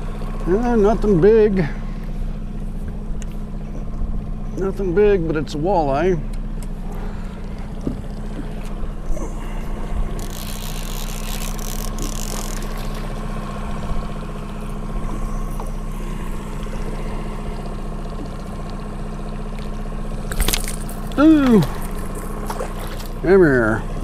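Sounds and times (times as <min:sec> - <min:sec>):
boat motor running: 0:00.0 - 0:24.0
fish splashing at surface: 0:20.3 - 0:23.2.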